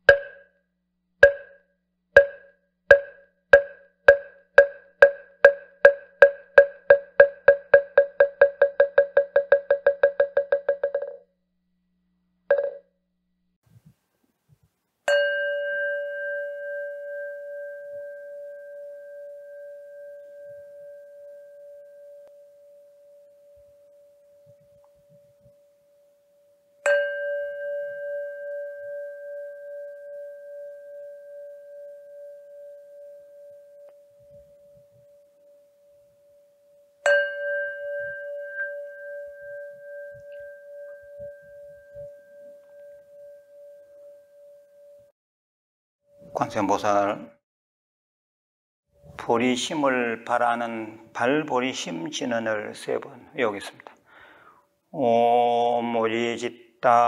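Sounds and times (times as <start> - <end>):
singing bowl ringing: 15.1 - 45.1.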